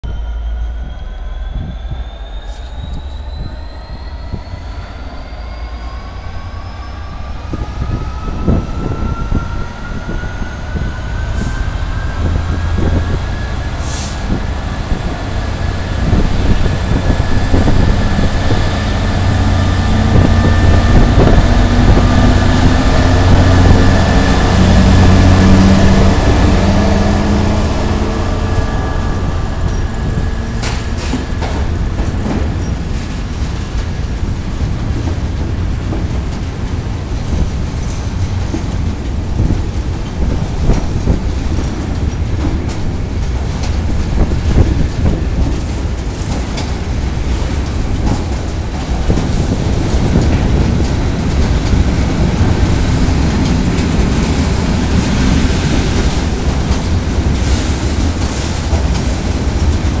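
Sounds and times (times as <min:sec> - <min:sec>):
rising engine whine: 0:00.0 - 0:35.0
diesel locomotive engine working hard: 0:00.0 - 1:00.0.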